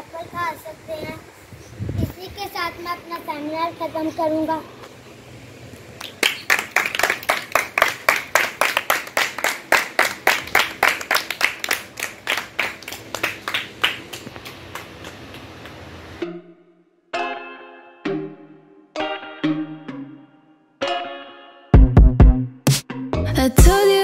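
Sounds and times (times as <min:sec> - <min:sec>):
people clapping in rhythm: 0:06.0 - 0:15.8.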